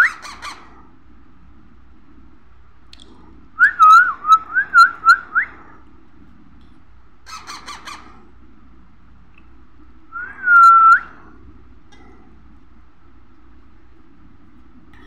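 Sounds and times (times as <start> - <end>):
baby parrot squawking: 0.0 - 0.7, 7.3 - 8.2.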